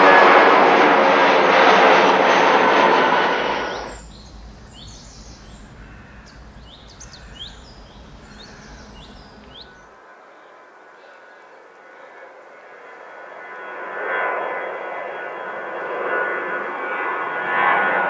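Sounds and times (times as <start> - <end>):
aircraft engine noise: 0.0 - 18.0
birds chirping: 1.5 - 13.0
faint low rumble: 1.6 - 9.9.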